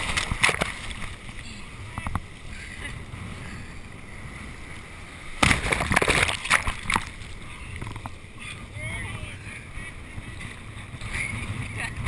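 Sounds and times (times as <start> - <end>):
water splashing against microphone: 0.0 - 2.3, 5.3 - 8.2
surf foam washing: 0.0 - 12.0.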